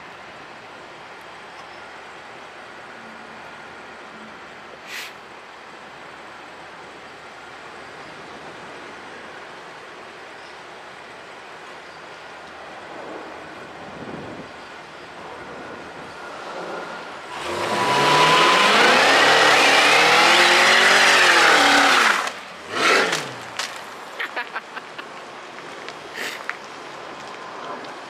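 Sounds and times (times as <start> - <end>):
car engine revving: 17.3 - 23.6.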